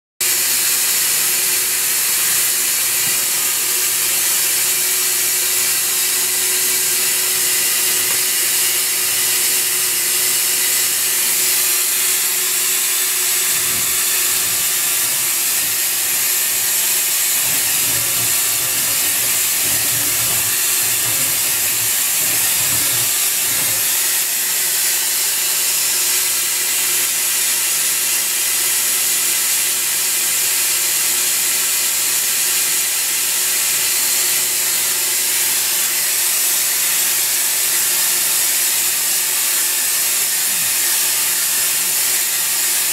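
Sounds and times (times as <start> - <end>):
machining center running: 1.3 - 24.4.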